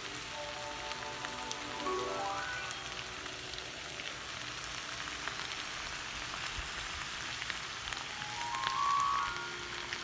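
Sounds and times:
food sizzling in oil: 0.0s - 10.0s
musical note: 0.1s - 3.8s, 8.1s - 10.0s.

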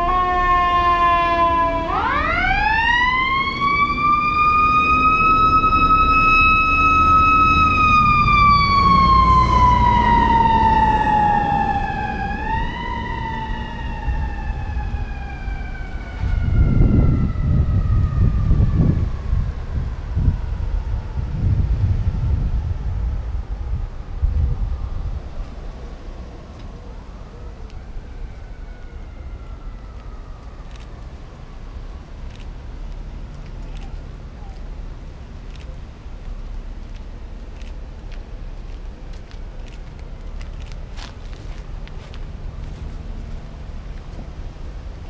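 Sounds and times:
fire engine siren wailing: 0.0s - 34.9s
heavy vehicle engines rumbling: 0.0s - 45.0s.

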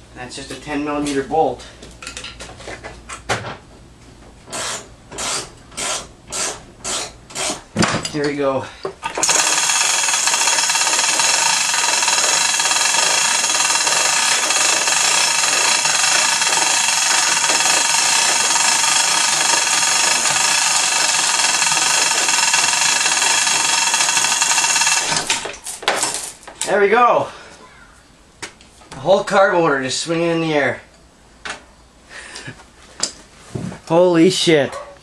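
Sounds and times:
electric hoist motor whining: 9.0s - 26.3s.

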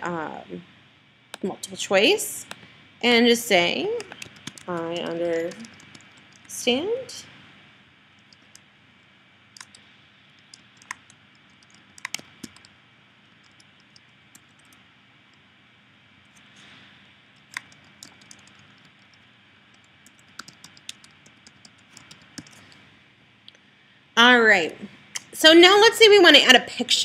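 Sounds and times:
keyboard typing: 4.0s - 6.6s, 8.2s - 8.7s, 9.6s - 9.8s, 10.4s - 14.8s, 17.4s - 22.8s.

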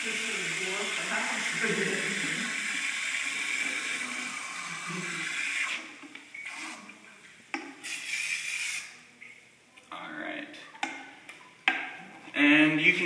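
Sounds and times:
water pouring into basin: 0.0s - 6.7s.

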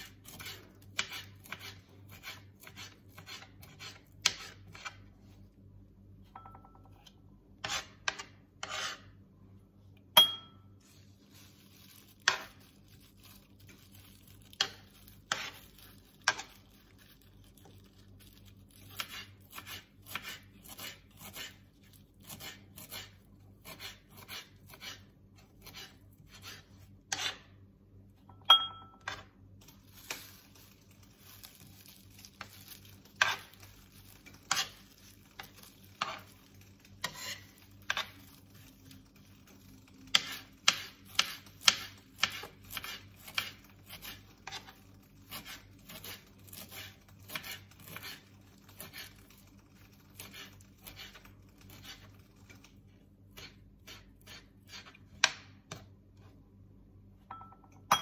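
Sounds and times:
knife tapping glass bowl: 6.3s - 7.1s, 10.2s - 10.6s, 28.3s - 29.2s, 57.3s - 58.0s
knife chopping on wooden board: 40.1s - 44.7s.

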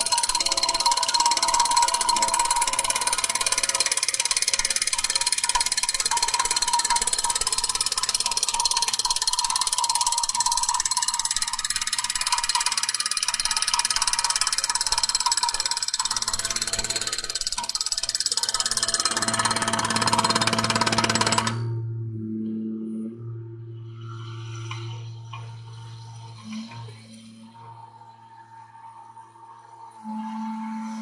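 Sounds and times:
hydraulic drilling rig pulsing: 0.0s - 21.7s.

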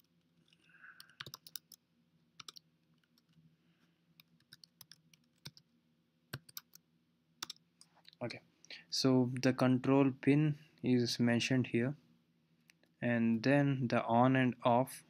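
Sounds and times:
typing on computer keyboard: 0.0s - 1.8s, 2.4s - 3.4s, 4.2s - 5.6s, 6.3s - 6.8s.

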